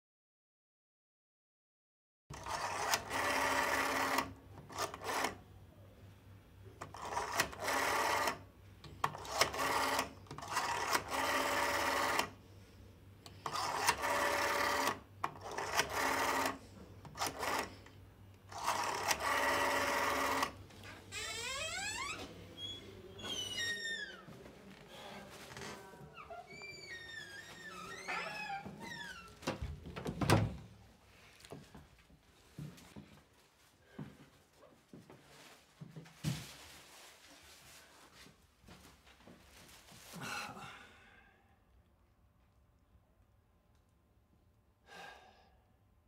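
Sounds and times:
small motorised machine running: 2.3 - 5.4, 9.2 - 12.3, 13.5 - 16.6, 18.5 - 20.6.

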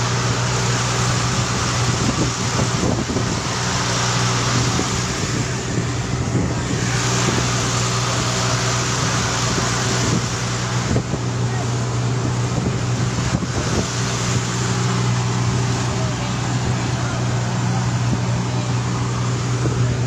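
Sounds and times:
boat engine running steadily: 0.0 - 20.0
rushing water: 0.0 - 20.0
wind: 0.0 - 20.0.

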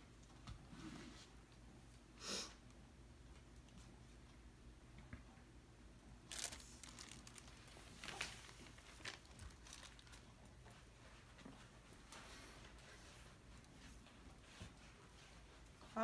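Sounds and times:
canvas crinkling rustles: 6.3 - 11.3.

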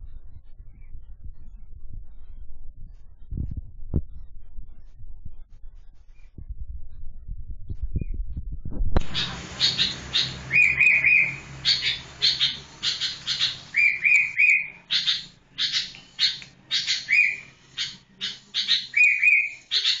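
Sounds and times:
bird harsh chatter: 9.1 - 20.0
bird whistled notes: 9.1 - 20.0.

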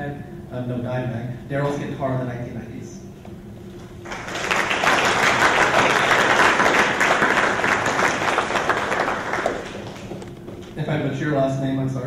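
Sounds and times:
audience applauding: 4.0 - 10.3.

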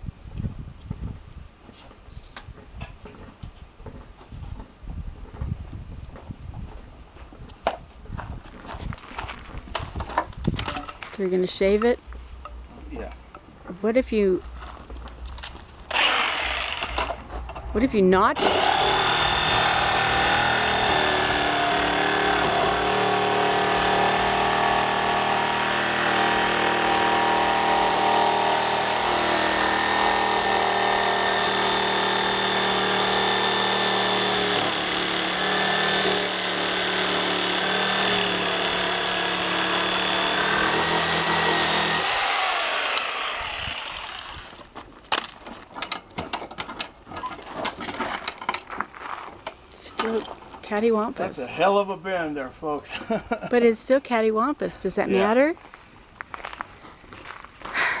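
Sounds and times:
electric jigsaw cutting wood: 15.9 - 17.2, 18.4 - 44.6
sharp knocks and clicks: 45.1 - 48.7.

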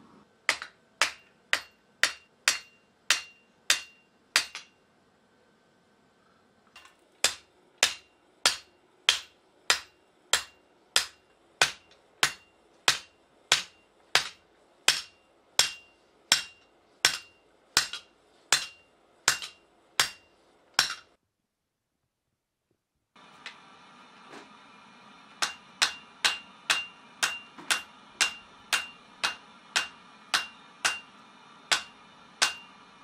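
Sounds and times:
hammer striking metal on anvil: 0.5 - 4.8, 6.8 - 21.1, 25.1 - 32.9.

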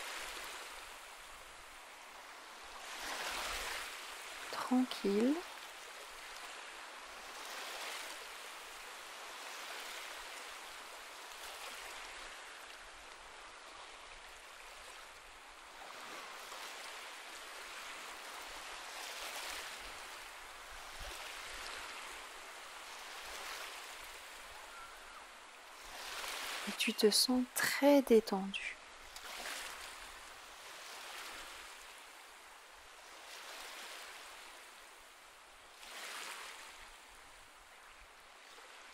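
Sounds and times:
gentle sea waves on beach: 0.0 - 38.9.

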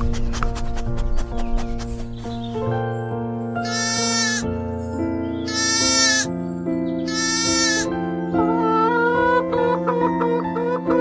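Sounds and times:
background music: 0.0 - 11.0
lamb bleating: 3.6 - 4.5, 5.5 - 6.3, 7.1 - 7.9.

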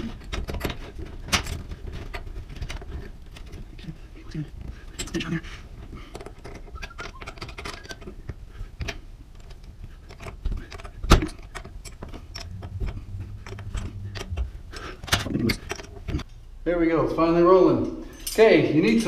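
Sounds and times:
low hum: 12.1 - 16.6.

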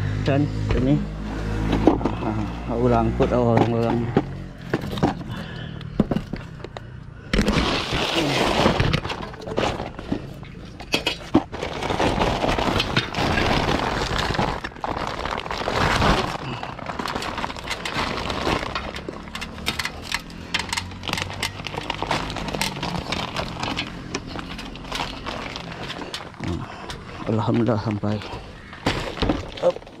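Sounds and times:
plastic sack crackling and rustling: 7.4 - 30.0.

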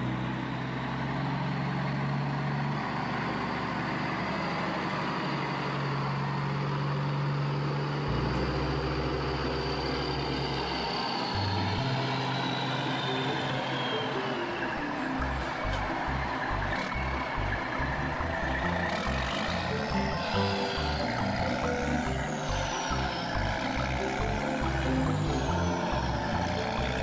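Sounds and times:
excavator engine running: 0.0 - 27.0.

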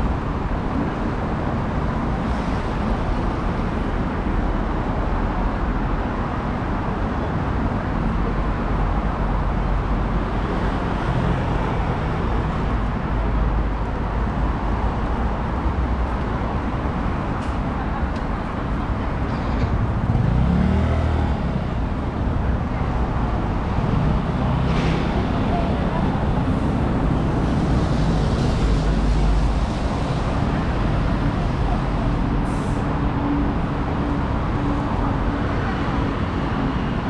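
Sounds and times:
road traffic rumble: 0.0 - 37.0
vehicle engine pulling away: 19.8 - 22.0.

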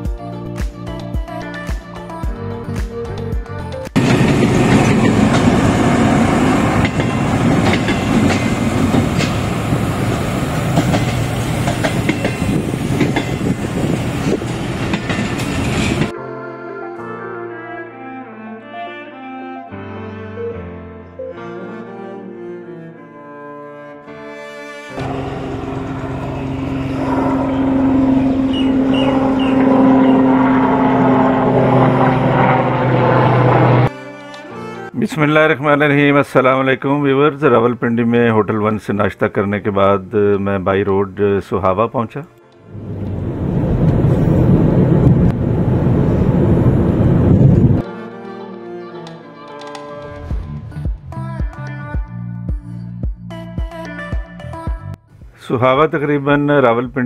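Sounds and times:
music: 0.0 - 4.4, 15.9 - 30.2, 33.8 - 36.1, 41.9 - 42.7, 47.8 - 55.5
diesel train passing: 4.0 - 16.1, 24.9 - 33.9, 42.4 - 48.0
helicopter flying overhead: 25.0 - 33.9.

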